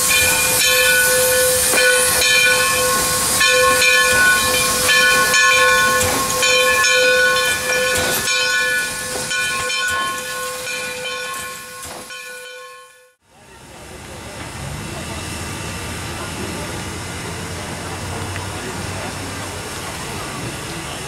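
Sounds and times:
pulsing steam whistling tone: 0.0s - 12.5s
steam locomotive hissing: 0.0s - 12.7s, 13.4s - 21.0s.

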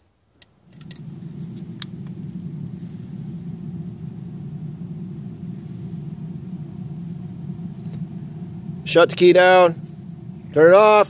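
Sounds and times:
car low whir: 0.5s - 11.0s.

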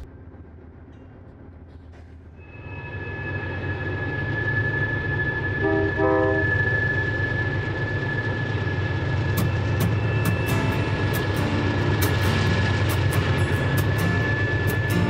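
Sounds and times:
diesel locomotive high whine: 0.0s - 15.0s
locomotive horn blasts: 5.6s - 6.6s.

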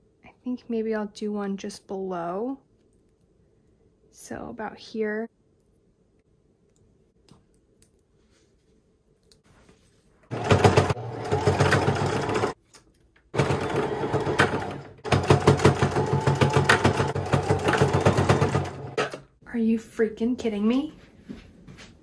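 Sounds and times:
sewing machine stitching: 10.3s - 12.6s, 13.4s - 19.3s.

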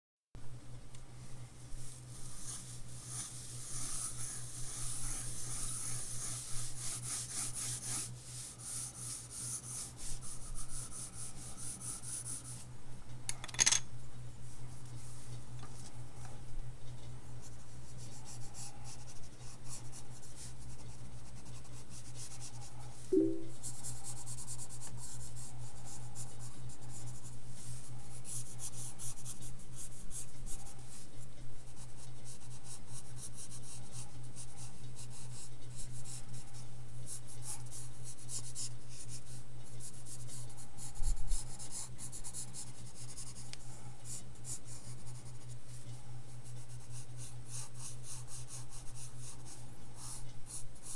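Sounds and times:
steady low hum: 0.4s - 50.9s
pencil scratching on paper: 1.8s - 12.7s, 23.6s - 31.0s, 31.6s - 36.5s, 37.1s - 50.9s.

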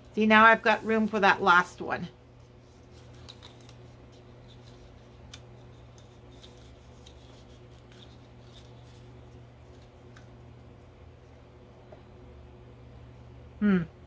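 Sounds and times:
steady low hum: 0.0s - 14.0s
paper strips crinkling: 2.4s - 10.4s.

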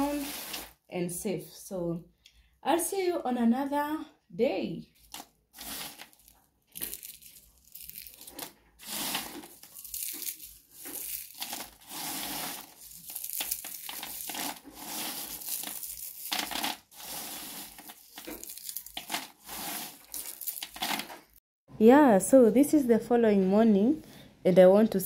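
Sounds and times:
peanuts rattling on metal tray: 5.1s - 21.2s.

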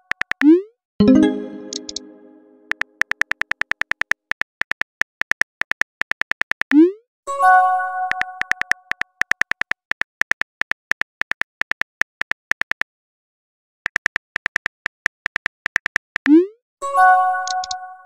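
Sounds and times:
phone keyboard clicks: 0.0s - 0.5s, 2.7s - 6.8s, 8.1s - 12.8s, 13.9s - 16.3s, 17.4s - 17.8s
bell-like message chime: 1.0s - 2.7s.

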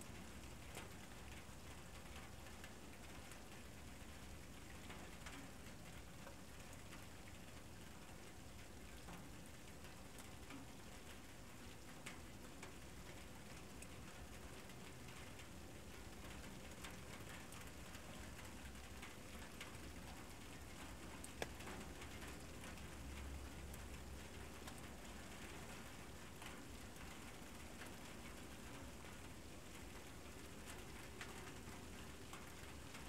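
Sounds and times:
faint steady hiss: 0.0s - 33.0s
small ticks and clicks: 11.8s - 33.0s.

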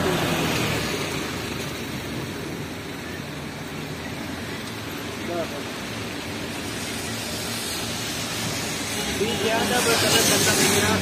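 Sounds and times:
traffic on a wet road: 0.0s - 11.0s.

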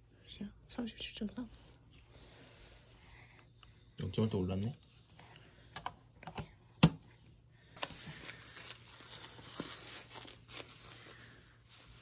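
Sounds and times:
diaper rustling and crinkling: 7.7s - 12.0s.

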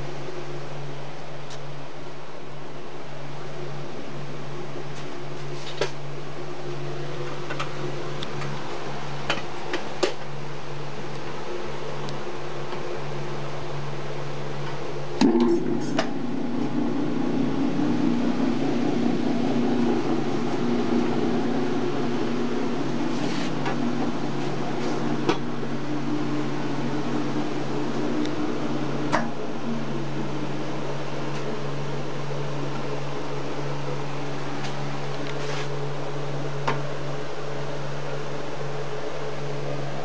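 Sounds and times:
mixer motor humming: 11.1s - 40.0s.

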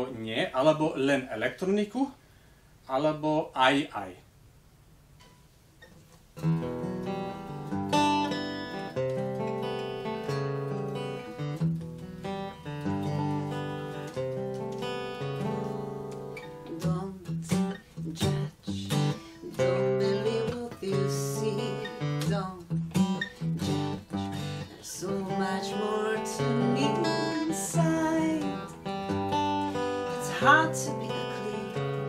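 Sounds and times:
acoustic guitar strumming: 6.4s - 32.0s
woman singing: 16.6s - 28.9s, 29.8s - 32.0s.

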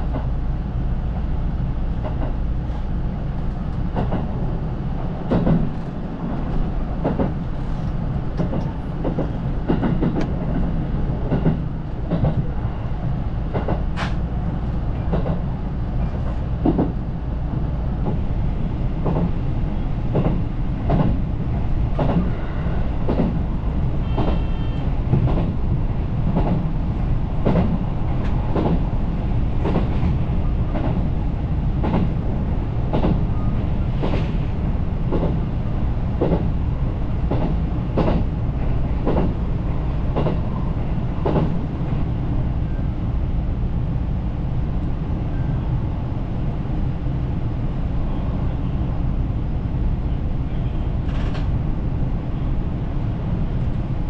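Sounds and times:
train rumbling: 0.0s - 54.0s.

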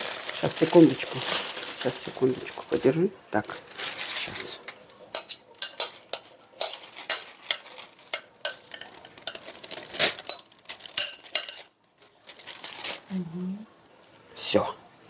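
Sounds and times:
metal spoon scraping glass bowl: 5.2s - 9.4s.

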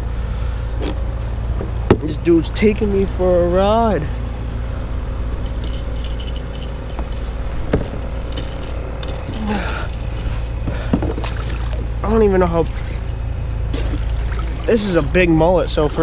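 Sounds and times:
fishing gear clicks and knocks: 5.3s - 11.3s
water rumble: 9.5s - 16.0s.

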